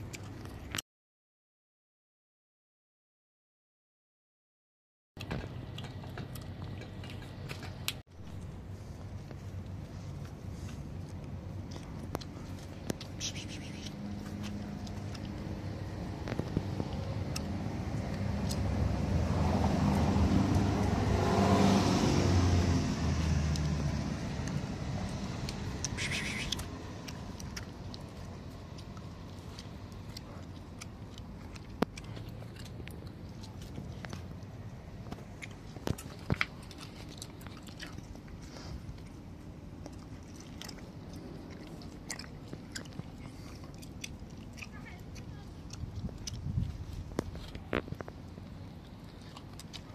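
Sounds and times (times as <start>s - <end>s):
car driving past: 13.8s - 27.1s.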